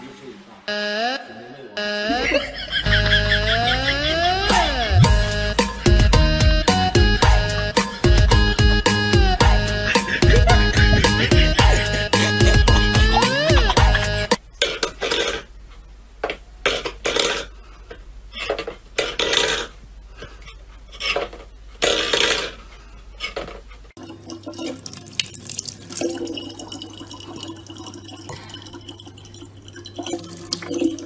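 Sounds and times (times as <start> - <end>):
steady hum: 1.6 - 14.4
tap water trickling: 24.0 - 31.0.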